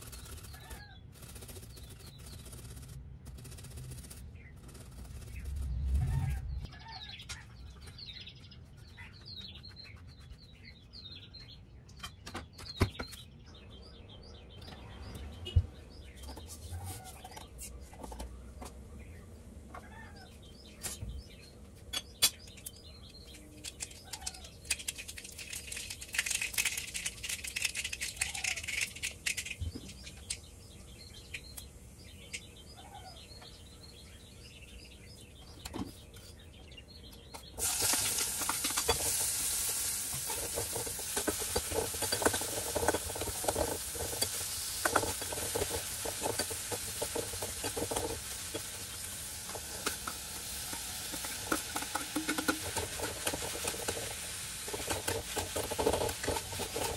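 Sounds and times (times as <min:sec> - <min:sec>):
spoon clinking and scraping pan: 0:37.6 - 0:48.9, 0:49.5 - 0:56.9
food sizzling in hot oil: 0:37.6 - 0:56.9.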